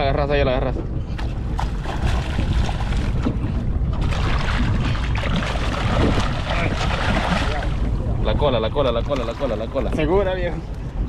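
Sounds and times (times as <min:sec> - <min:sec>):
wind on microphone: 0:00.0 - 0:11.0
fish splashing in water: 0:04.0 - 0:07.9.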